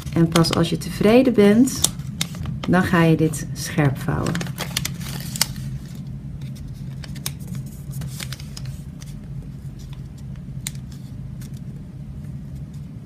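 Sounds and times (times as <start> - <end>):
steady low hum: 0.0 - 13.0
paper rustling and crackling: 4.2 - 11.7.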